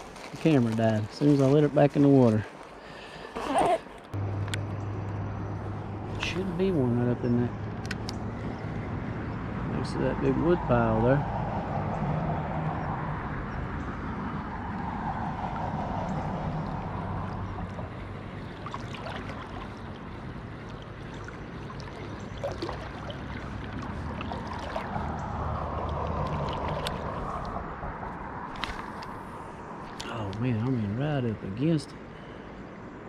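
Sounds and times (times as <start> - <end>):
low hum: 4.0 - 31.0
river water flowing: 13.6 - 33.0.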